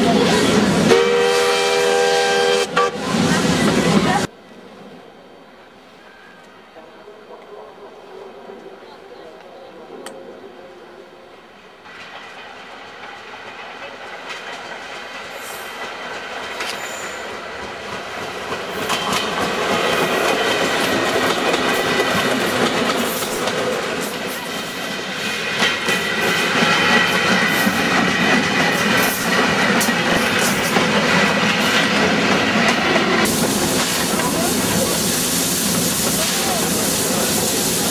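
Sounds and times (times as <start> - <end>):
electric train passing: 0.0 - 37.9
wheels clacking over rail joints: 11.9 - 34.6
thin high squeal: 16.8 - 17.3.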